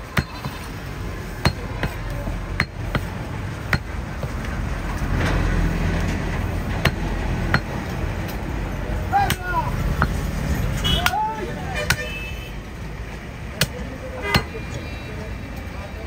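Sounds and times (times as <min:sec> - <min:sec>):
cleaver chopping meat on wood: 0:01.4 - 0:04.4, 0:06.8 - 0:07.8.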